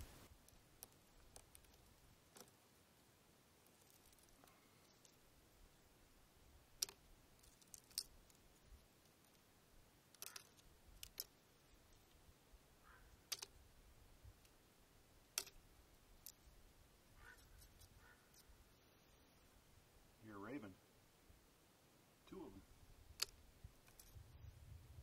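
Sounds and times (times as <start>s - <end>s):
stone slabs clicking together: 10.2s - 11.3s, 13.3s - 13.5s, 15.4s - 15.6s.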